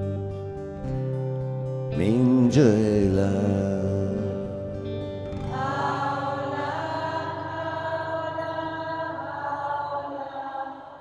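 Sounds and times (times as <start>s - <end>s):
voices chanting long notes: 2.9s - 11.0s.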